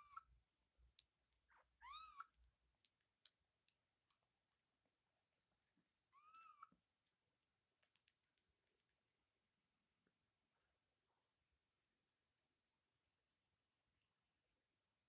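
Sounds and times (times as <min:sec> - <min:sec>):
cat mewing: 0:01.8 - 0:02.3, 0:06.1 - 0:06.7
faint soft clicks: 0:02.2 - 0:05.1, 0:06.6 - 0:08.6.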